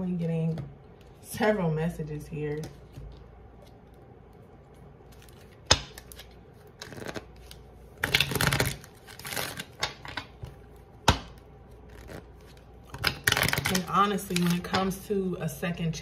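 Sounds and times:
cards being shuffled: 0:05.0 - 0:10.6, 0:11.7 - 0:14.8.

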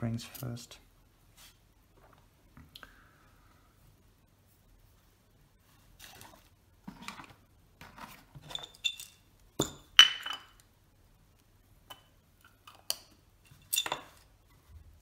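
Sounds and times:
metal tools clinking on workbench: 0:08.4 - 0:10.6, 0:13.5 - 0:14.2.

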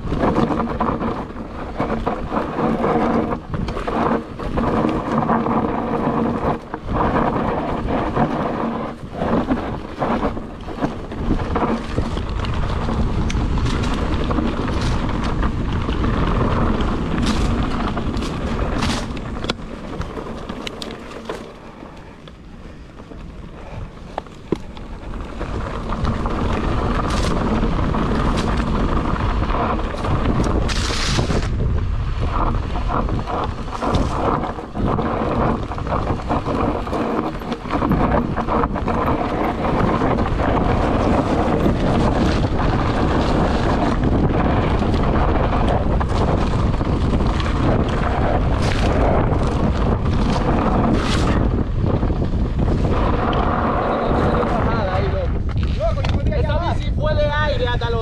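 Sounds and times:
bike knocks and rattles: 0:00.0 - 0:58.0
bike tyres rolling over stones: 0:00.0 - 0:58.0
wind buffeting microphone: 0:00.0 - 0:58.0.

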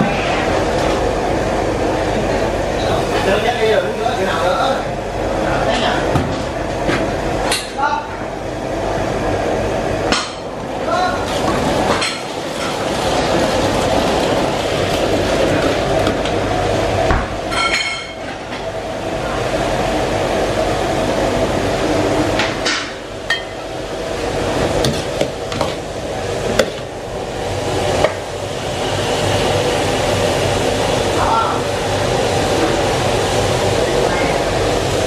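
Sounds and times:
gas burner flame and frying: 0:00.0 - 0:35.0.

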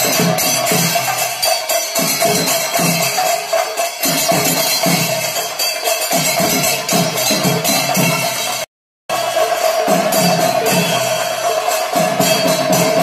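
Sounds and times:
drum strokes: 0:00.0 - 0:13.0
ringing cymbals: 0:00.0 - 0:13.0.

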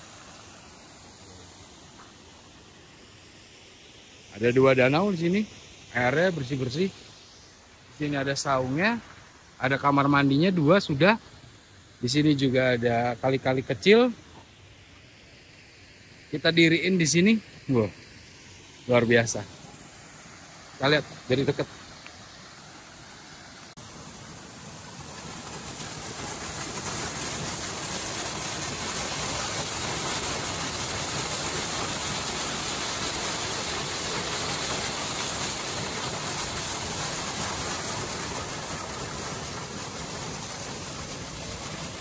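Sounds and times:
waterfall rushing: 0:00.0 - 0:03.4, 0:16.6 - 0:42.0.

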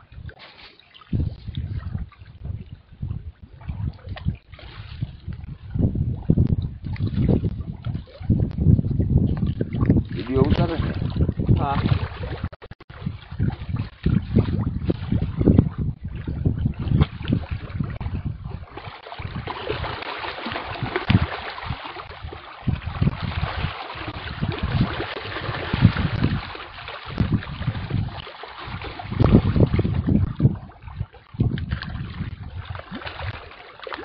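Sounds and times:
wind buffeting microphone: 0:01.0 - 0:33.6
fish splashing at water surface: 0:03.6 - 0:05.4, 0:16.1 - 0:34.0.

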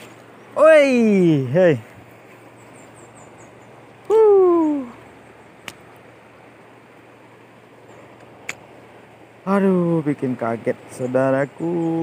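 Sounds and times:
river water hissing: 0:00.0 - 0:12.0
man shouting: 0:04.1 - 0:04.9.

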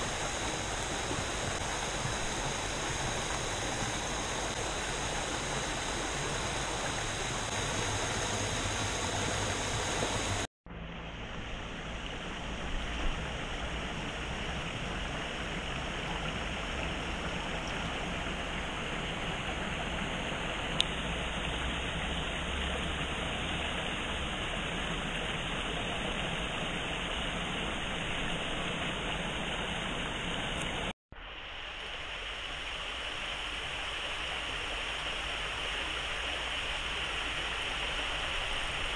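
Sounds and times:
stream running over stones: 0:00.0 - 0:38.9.

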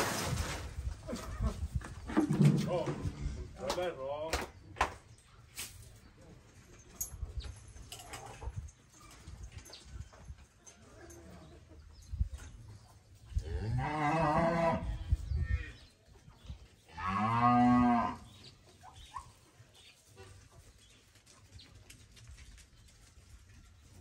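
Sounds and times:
cattle mooing: 0:17.0 - 0:18.2.

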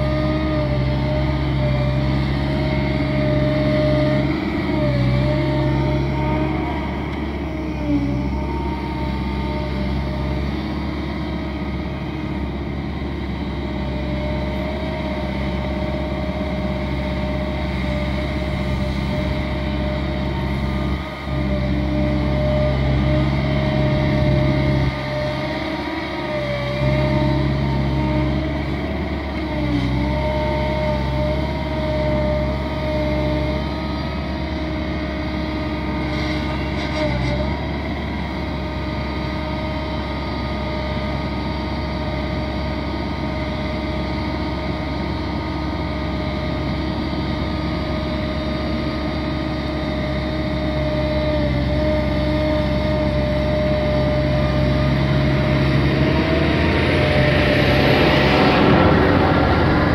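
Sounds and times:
excavator engine and hydraulics: 0:00.0 - 0:59.9.

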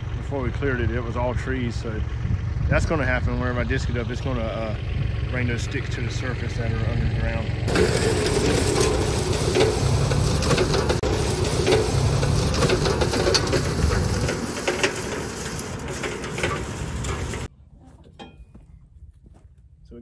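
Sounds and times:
tractor engine under load: 0:00.0 - 0:18.5
disc harrow rattling and clanking: 0:05.8 - 0:17.5.

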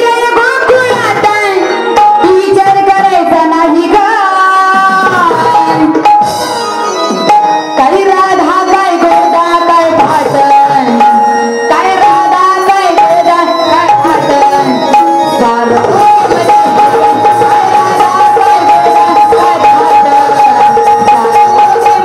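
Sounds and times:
woman singing into a microphone: 0:00.0 - 0:22.0
held keyboard tone: 0:04.8 - 0:22.0.

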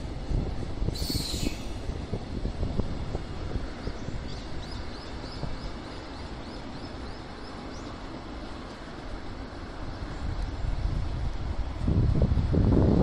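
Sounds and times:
freight train rumbling on rails: 0:00.0 - 0:13.0
quick high chirping: 0:01.0 - 0:01.8.

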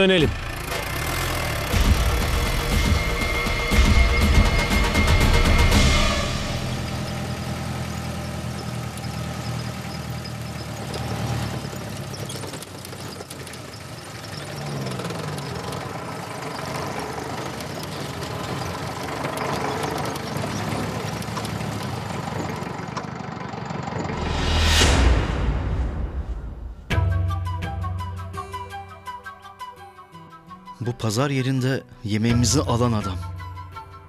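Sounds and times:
car engine running: 0:00.0 - 0:27.0.

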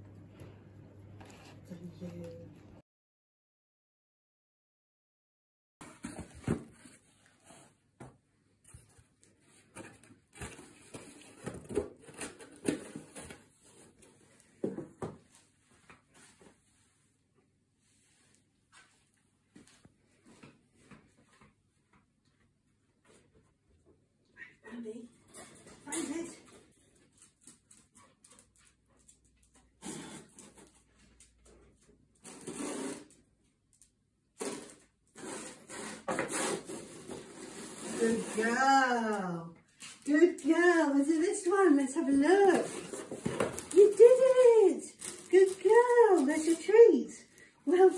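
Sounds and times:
cardboard rustling: 0:05.8 - 0:07.8.

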